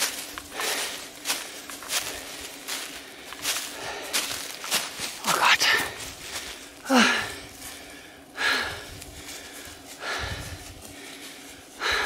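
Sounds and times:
person panting heavily: 0.0 - 12.0.

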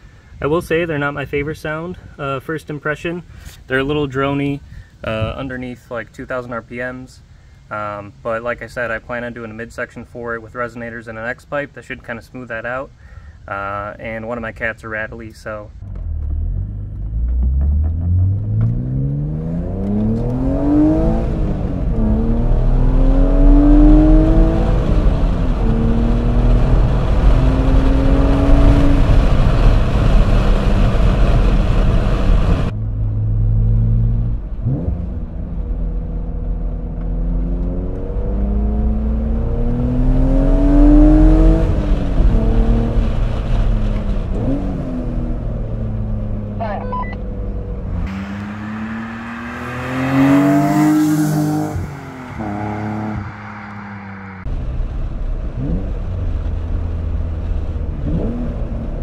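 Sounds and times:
car engine accelerating through gears: 15.8 - 59.0.

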